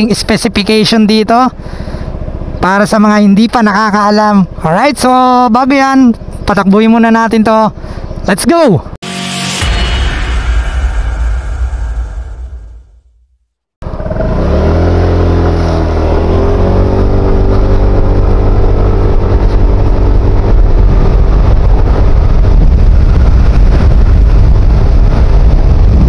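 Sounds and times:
scooter engine accelerating: 13.8 - 23.6
wind rushing past microphone: 15.5 - 26.0.

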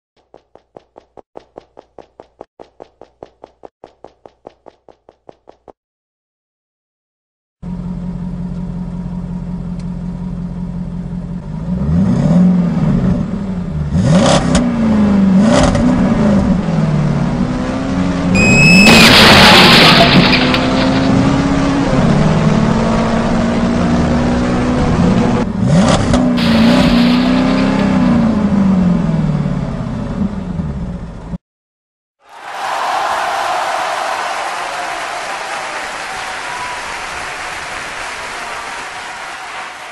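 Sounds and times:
rally car engine revving: 11.4 - 30.7
high squeal: 18.4 - 20.8
sharp engine cracks: 18.8 - 21.2, 26.4 - 28.5
loud rush of noise: 26.4 - 28.3.

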